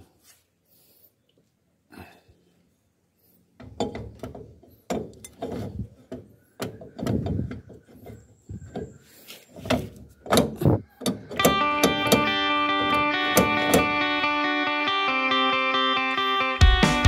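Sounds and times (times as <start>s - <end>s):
metal scraping and clunking: 3.6s - 14.0s.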